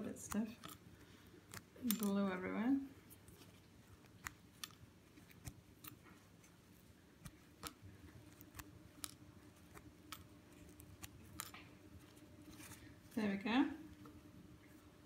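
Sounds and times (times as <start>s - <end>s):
light clicks of pins: 0.0s - 6.6s.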